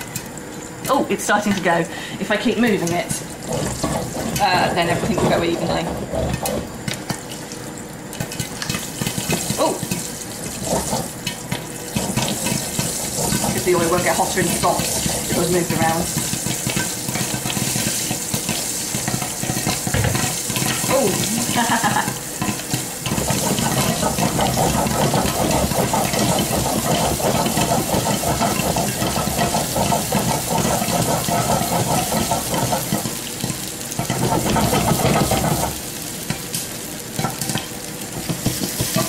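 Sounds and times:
popcorn popping and sizzling: 0.0s - 39.0s
pan shaking on burner: 23.0s - 33.2s.

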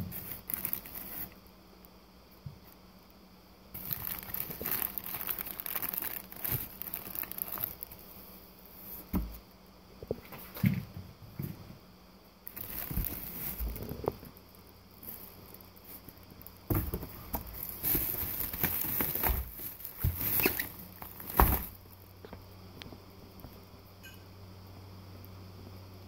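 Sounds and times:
plastic packaging rustling: 0.0s - 1.4s, 3.8s - 8.2s, 12.5s - 14.3s, 16.7s - 22.0s.

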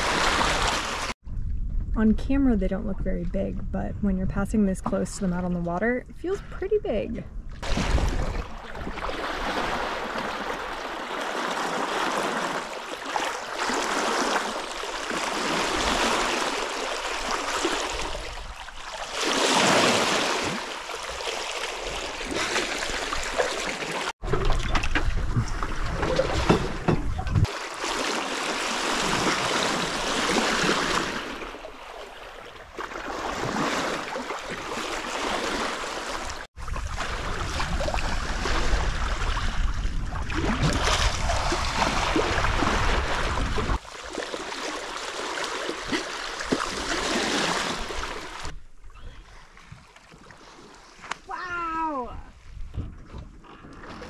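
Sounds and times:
water rushing along boat hull: 0.0s - 1.2s, 7.6s - 53.0s
wind rumble: 0.0s - 10.8s, 24.2s - 27.5s.

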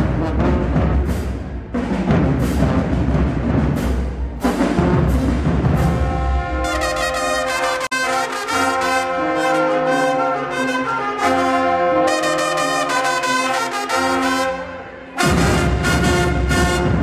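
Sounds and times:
brass section playing held chords: 5.8s - 17.0s.

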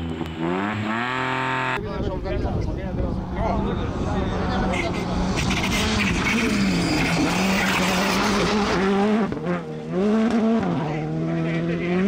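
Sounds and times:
rally car engine running hard: 2.9s - 12.0s.

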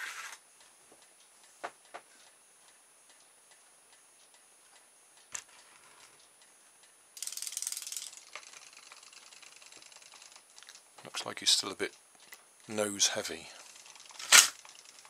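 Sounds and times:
toy fish tail rapid ticking: 7.2s - 10.8s, 12.7s - 15.0s.

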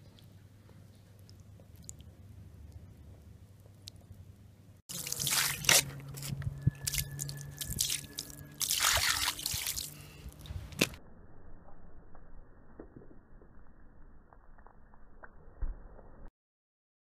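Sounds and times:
water splashing onto shoe: 4.9s - 5.9s, 7.6s - 10.0s
water dripping: 4.9s - 10.5s.

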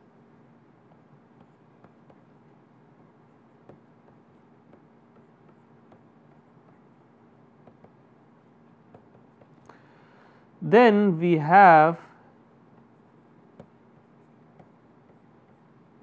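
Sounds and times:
low room tone hum: 0.0s - 16.0s
stylus tapping on pen tablet: 0.9s - 2.3s, 3.6s - 6.9s, 7.5s - 8.1s, 8.7s - 9.8s, 12.8s - 15.8s.

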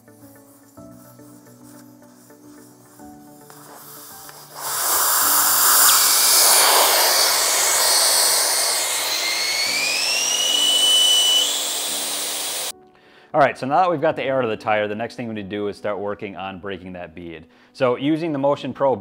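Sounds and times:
background music: 0.0s - 19.0s
air hissing from tyre valve: 3.4s - 12.7s.

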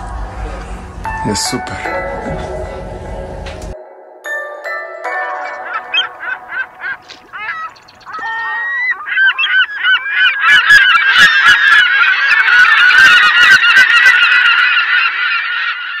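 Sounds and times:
flock of birds calling: 5.1s - 16.0s.

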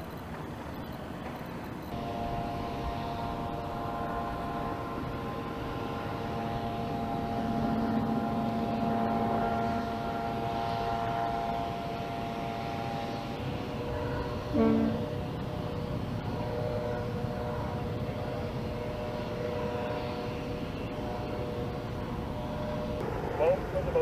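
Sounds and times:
engine drone: 0.0s - 24.0s.

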